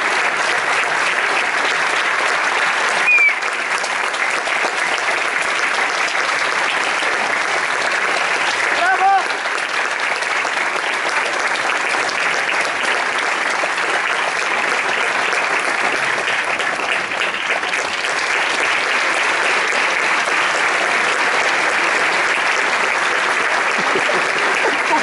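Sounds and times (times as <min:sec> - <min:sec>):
audience applauding: 0:00.0 - 0:25.0.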